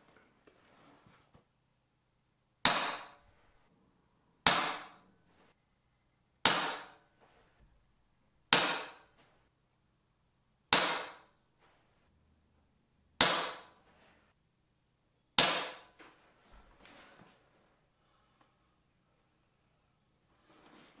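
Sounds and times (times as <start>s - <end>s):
air pistol shots: 2.6s - 3.2s, 6.4s - 7.0s, 8.5s - 9.0s, 10.7s - 11.3s, 13.2s - 13.8s, 15.4s - 15.9s.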